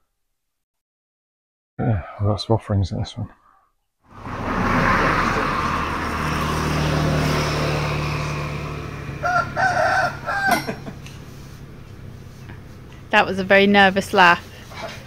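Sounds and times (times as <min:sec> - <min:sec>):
passing vehicle engine hum: 0:04.1 - 0:15.0
rooster crowing: 0:08.8 - 0:11.0.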